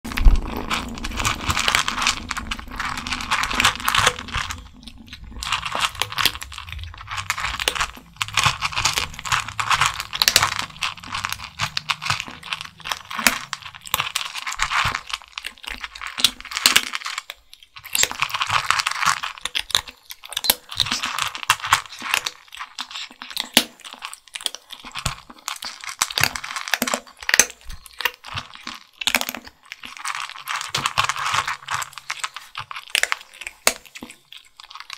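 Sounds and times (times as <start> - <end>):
kittens crunching dry kibble: 0.0 - 34.9.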